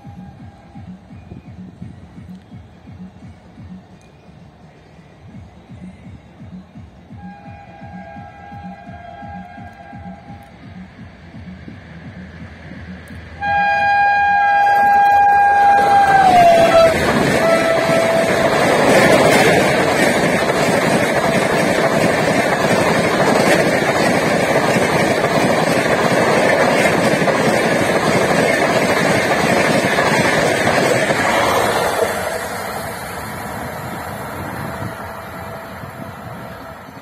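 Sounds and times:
train wheels rumbling on rails: 0.0 - 4.0, 5.1 - 37.0
locomotive horn: 7.1 - 10.5, 13.4 - 19.1.

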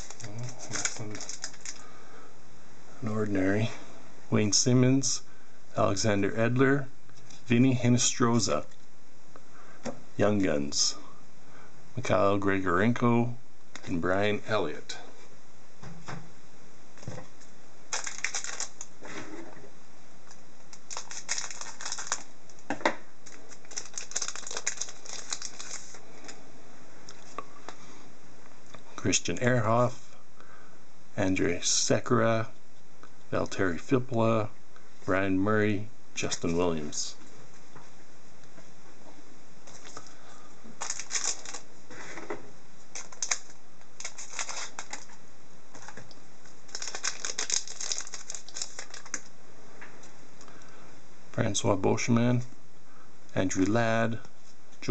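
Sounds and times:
foil wrapper tearing and crinkling: 0.0 - 1.8, 17.9 - 18.9, 20.7 - 22.3, 23.2 - 26.4, 40.8 - 41.7, 42.9 - 45.2, 46.7 - 49.3.

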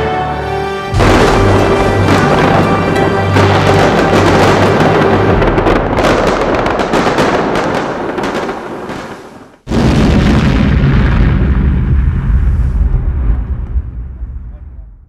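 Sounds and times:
loud low-pitched noise: 0.9 - 7.6
booming crackling fireworks: 1.0 - 15.0.

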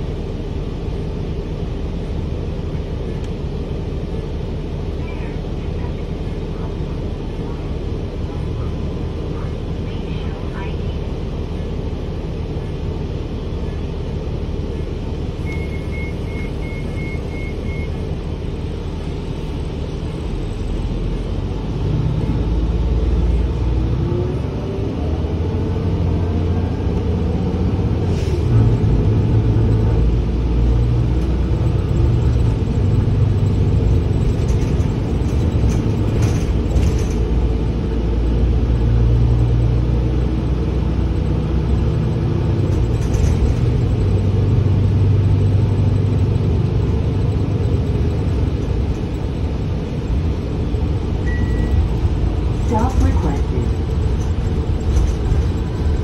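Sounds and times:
bus engine and road rumble: 0.0 - 56.0
quick beeps: 15.4 - 18.0, 51.2 - 51.8
rattles: 33.4 - 37.4, 52.0 - 56.0.

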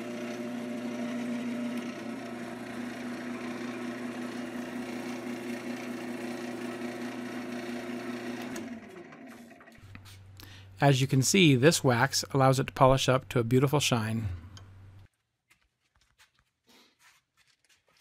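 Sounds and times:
cloth buffing spinning wood: 0.0 - 9.9
wood lathe motor hum: 0.0 - 9.9.

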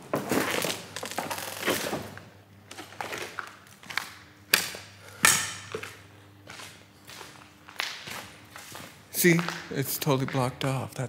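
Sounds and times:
footsteps crunching over rubble: 5.6 - 10.9.

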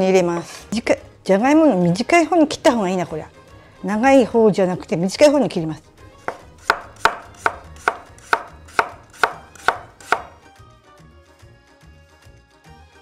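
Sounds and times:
knife slicing potato on board: 6.3 - 10.4.

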